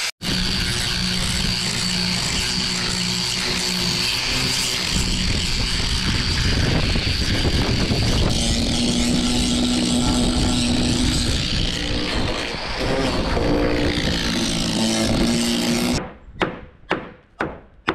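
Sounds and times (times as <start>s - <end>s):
wind buffeting microphone: 4.7s - 15.3s.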